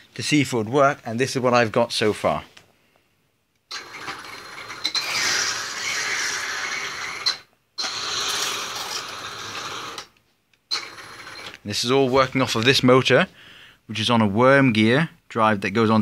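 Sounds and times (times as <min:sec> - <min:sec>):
toy tank motor and track running: 0:03.7 - 0:10.1, 0:10.8 - 0:11.6.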